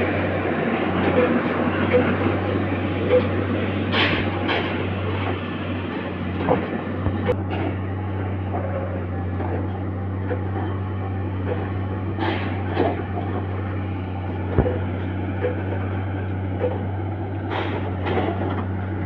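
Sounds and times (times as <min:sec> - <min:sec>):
railway machinery hum: 0:00.0 - 0:19.0
knocks and clanks: 0:03.1 - 0:05.5, 0:06.3 - 0:07.9, 0:11.4 - 0:13.7, 0:14.4 - 0:18.8.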